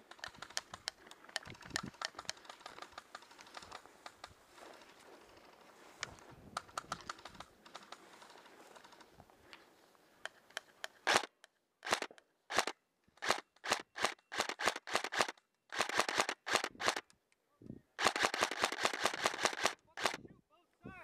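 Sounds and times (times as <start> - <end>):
rustling: 0.0 - 17.0
faint clicks: 0.0 - 17.4
airsoft rifle shots: 11.0 - 17.0, 18.0 - 20.2.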